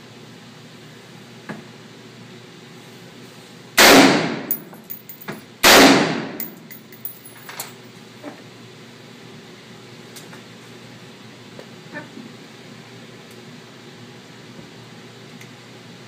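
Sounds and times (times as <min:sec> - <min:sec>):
metallic clicks and clinks: 0:04.5 - 0:05.4, 0:06.4 - 0:07.8.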